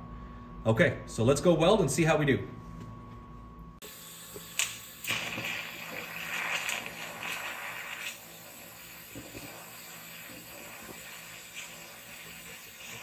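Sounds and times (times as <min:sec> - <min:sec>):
welding arc hissing: 0:03.8 - 0:13.0.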